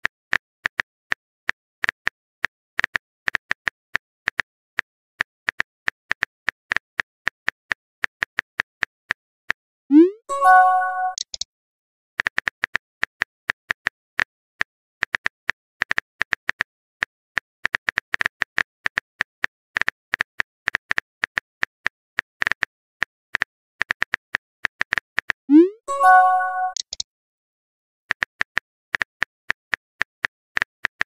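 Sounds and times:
message sent swoop and chime: 0:09.9 - 0:11.2, 0:25.5 - 0:26.8.

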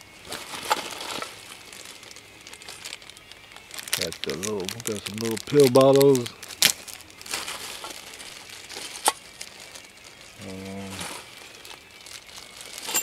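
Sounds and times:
plastic bags crinkling: 0:00.0 - 0:13.0
man humming: 0:10.4 - 0:11.2.

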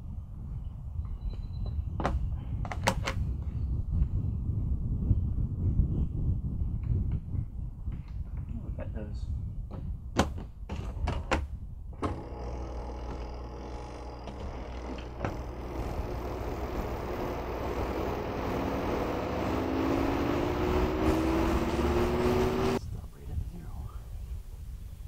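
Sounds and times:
rising motor whine: 0:12.0 - 0:22.8
spin-dryer motor humming: 0:12.0 - 0:22.8.

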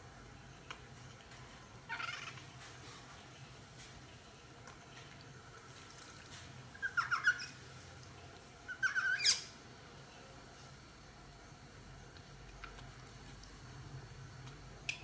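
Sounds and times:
baby monkey squealing: 0:01.9 - 0:02.4, 0:06.8 - 0:07.6, 0:08.7 - 0:09.5.

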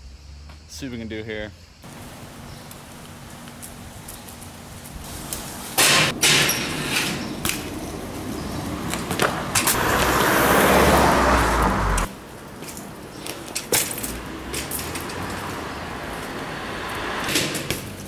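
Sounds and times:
bike grinding scrape on metal: 0:05.5 - 0:07.4.

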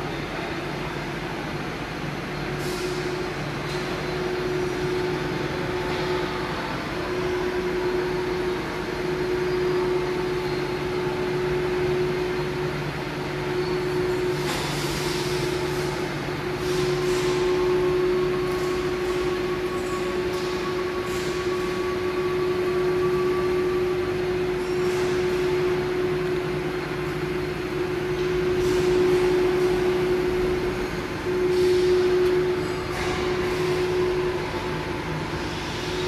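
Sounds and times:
factory machinery drone: 0:00.0 - 0:36.0
mid-pitched machine whine: 0:00.0 - 0:36.0.

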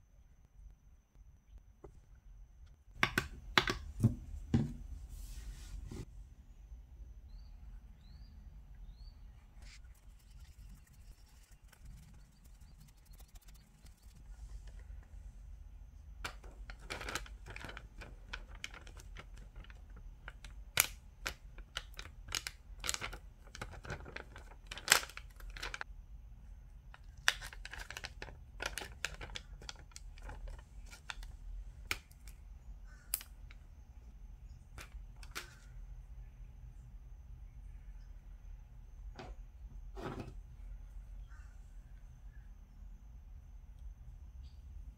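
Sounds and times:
low steady hum: 0:00.0 - 0:44.9
plastic sheet crinkling: 0:16.4 - 0:19.8.

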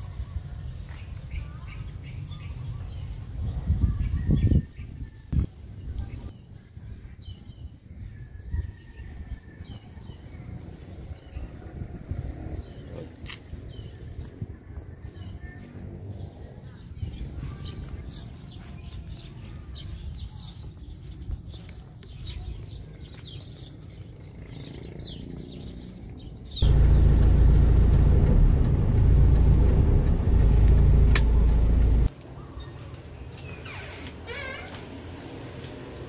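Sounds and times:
small birds chirping: 0:00.1 - 0:28.3
loud low rumbling: 0:26.6 - 0:32.1.

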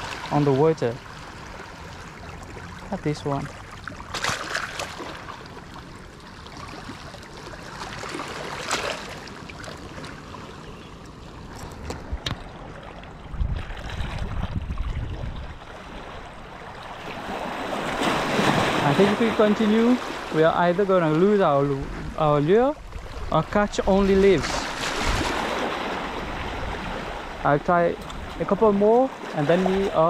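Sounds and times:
waves lapping on rocks: 0:00.0 - 0:10.7, 0:15.5 - 0:30.0
wind buffeting microphone: 0:11.7 - 0:17.4, 0:21.7 - 0:28.5.

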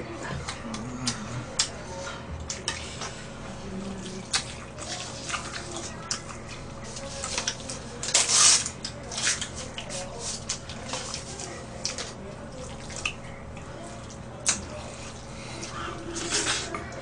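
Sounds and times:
wet chewing and lip smacks: 0:00.4 - 0:01.8, 0:12.7 - 0:15.8.

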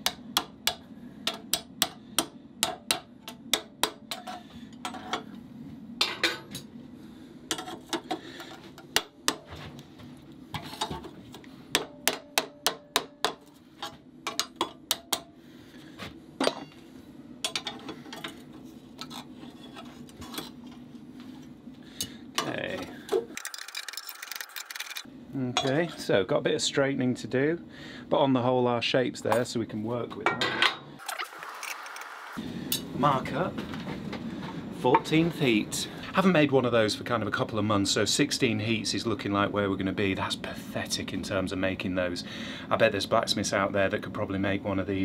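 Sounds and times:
steady low hum: 0:00.0 - 0:31.0, 0:32.4 - 0:45.0
hammer striking metal: 0:11.7 - 0:13.5.

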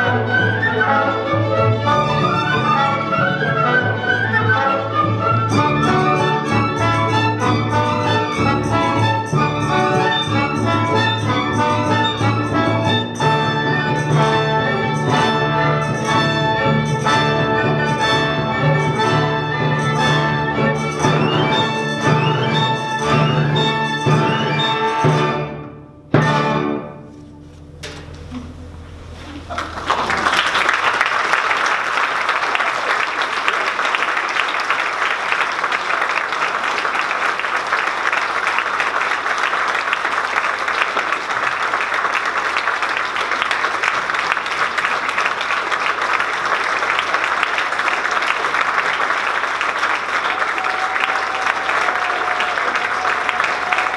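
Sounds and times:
orchestra low note: 0:05.5 - 0:30.7
audience applauding: 0:29.4 - 0:53.9.

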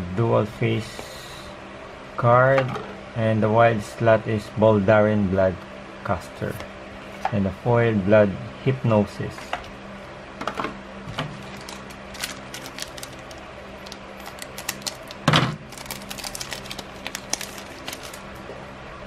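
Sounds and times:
foil crinkling: 0:11.3 - 0:18.5
scissors snipping foil wrapper: 0:11.4 - 0:18.2.

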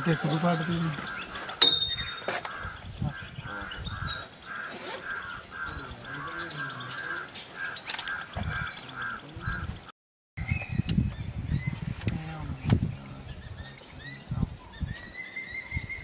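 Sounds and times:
bird calling harsh note: 0:00.2 - 0:09.7.

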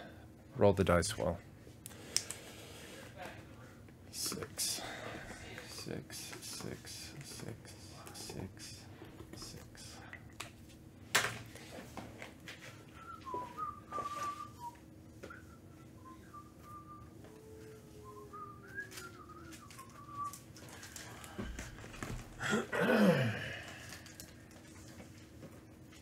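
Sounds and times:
person whistling: 0:12.7 - 0:20.5.

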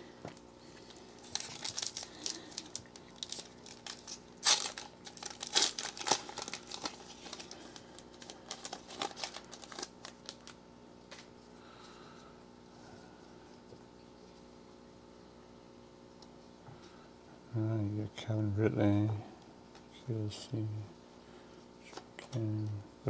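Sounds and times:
foil wrapper crinkling and tearing: 0:00.8 - 0:10.6.

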